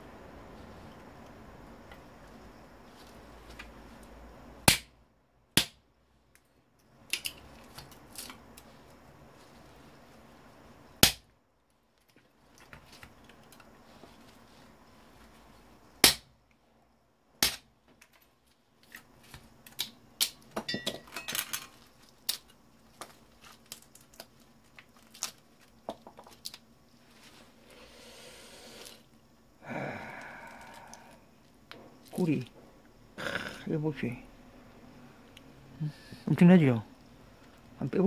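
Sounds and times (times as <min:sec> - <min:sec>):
loud sharp snaps: 0:04.6 - 0:05.0, 0:05.6 - 0:05.8, 0:11.0 - 0:11.3, 0:16.0 - 0:16.3.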